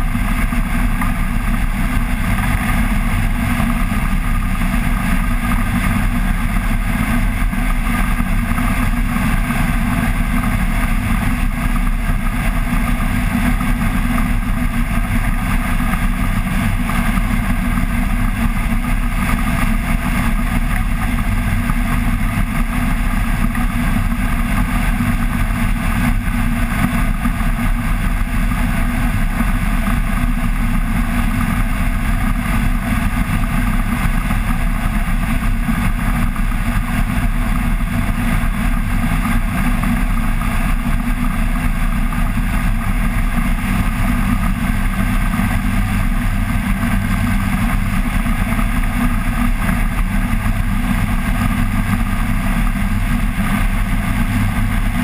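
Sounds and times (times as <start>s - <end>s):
aircraft engine and propeller drone: 0.0s - 55.0s.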